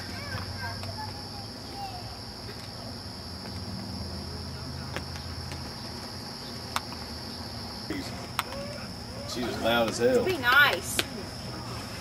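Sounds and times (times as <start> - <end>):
crickets chirping: 0.0 - 12.0.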